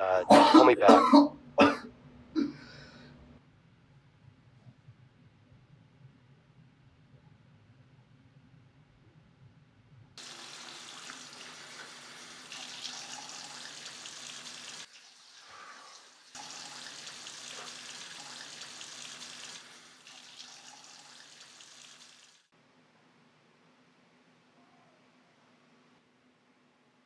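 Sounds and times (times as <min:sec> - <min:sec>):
tap water running into sink: 0:10.2 - 0:15.2, 0:16.4 - 0:22.4.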